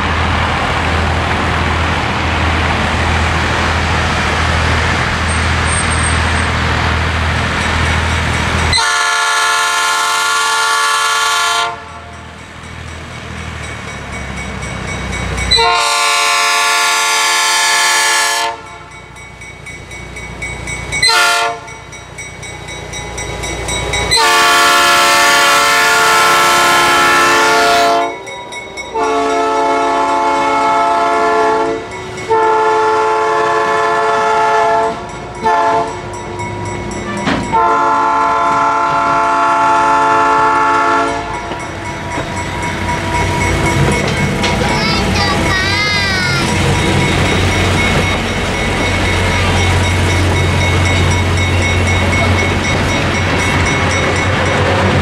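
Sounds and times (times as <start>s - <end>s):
train wheels clattering on rails: 0.0s - 9.9s, 11.8s - 16.4s, 34.7s - 55.0s
locomotive air horn blasts: 8.7s - 12.1s, 15.5s - 18.9s, 21.0s - 21.8s, 24.1s - 28.2s, 29.0s - 36.0s, 37.5s - 41.7s.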